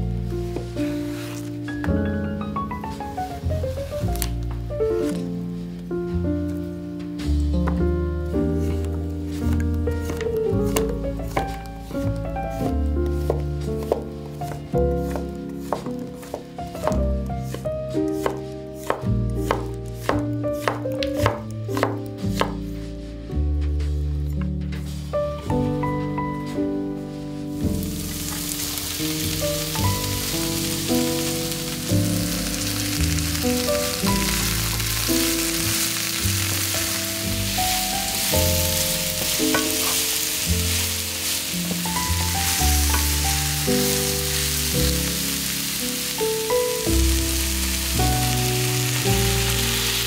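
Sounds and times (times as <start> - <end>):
background music: 0.0 - 50.0
wooden spatula stirring: 0.5 - 1.9, 8.4 - 23.2, 27.2 - 46.6
vegetables sizzling in a pan: 1.0 - 1.4, 27.7 - 50.0.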